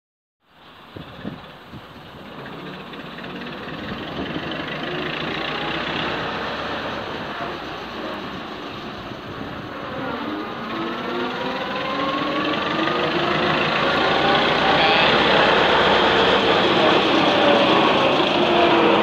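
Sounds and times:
diesel locomotive engine running: 1.0 - 19.0
rising whine: 5.1 - 19.0.

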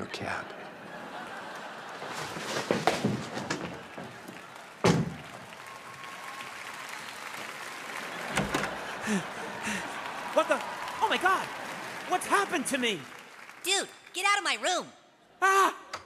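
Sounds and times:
audience applause: 0.2 - 14.7
door slamming: 4.8 - 5.2, 8.2 - 8.9
thud: 4.8 - 5.2.

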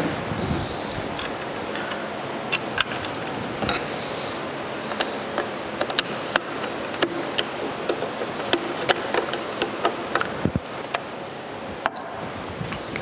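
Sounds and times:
background hiss: 0.0 - 13.0
wrench clicking: 4.9 - 11.0.

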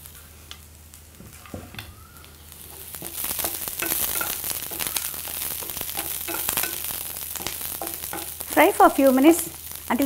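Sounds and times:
vegetables sizzling in oil: 0.0 - 10.0.

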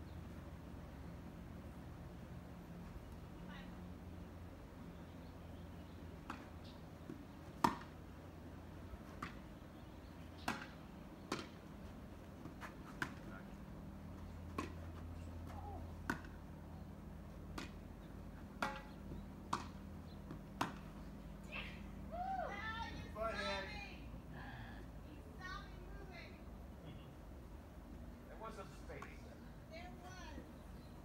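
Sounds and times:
steady low hum: 0.0 - 31.0
ball being struck: 7.6 - 8.0, 10.4 - 11.6, 16.0 - 16.4, 18.6 - 20.9.

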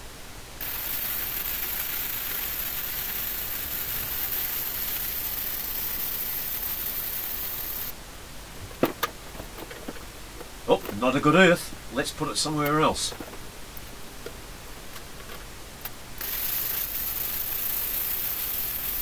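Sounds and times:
welding arc hissing: 0.6 - 8.0, 16.2 - 19.0.

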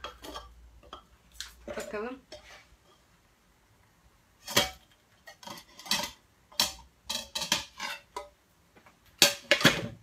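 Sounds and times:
metal plates clanking and scraping: 4.4 - 8.3.

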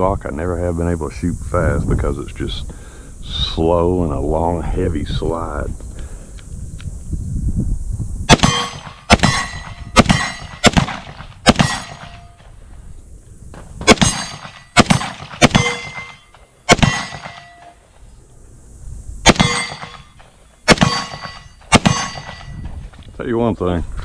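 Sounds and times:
steel target clanging: 8.3 - 10.8, 11.5 - 12.4, 13.8 - 17.8, 19.3 - 22.8
pistol shots: 8.3 - 12.4, 13.8 - 17.7, 19.2 - 22.5.

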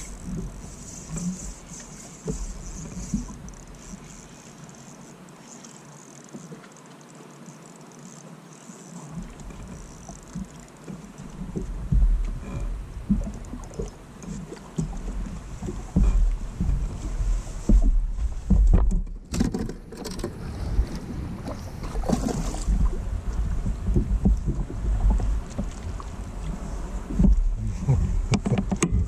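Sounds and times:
wind rumbling on microphone: 0.0 - 4.2, 11.2 - 29.0
water lapping at boat hull: 0.0 - 29.0
knocks on boat deck: 17.6 - 19.8.

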